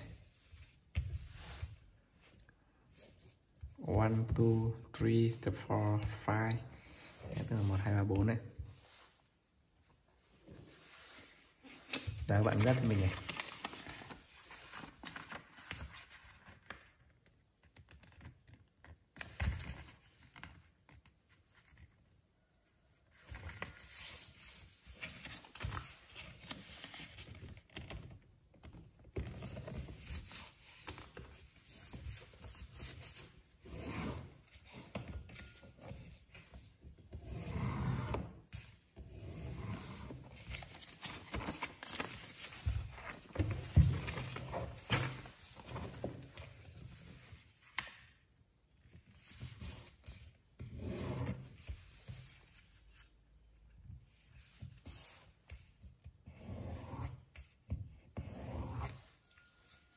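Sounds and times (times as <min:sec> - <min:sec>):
paper rustling and creasing: 0:10.6 - 0:22.2, 0:23.0 - 0:33.6, 0:39.7 - 0:48.1.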